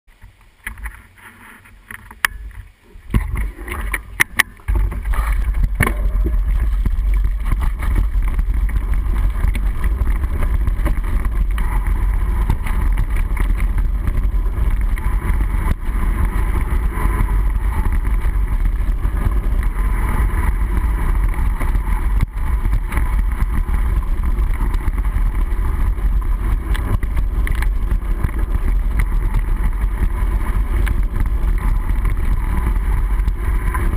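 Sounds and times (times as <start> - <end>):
muffled rumble of wind and vibration: 0.1 - 33.9
sharp clicks and knocks: 1.8 - 19.7.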